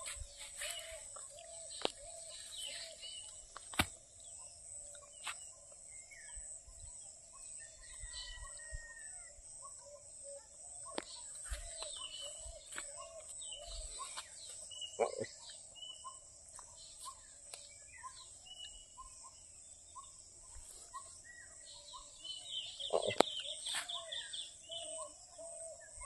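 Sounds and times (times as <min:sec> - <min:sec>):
birds chirping and whistling: 0:00.0 - 0:03.6, 0:10.3 - 0:19.4, 0:20.9 - 0:26.0.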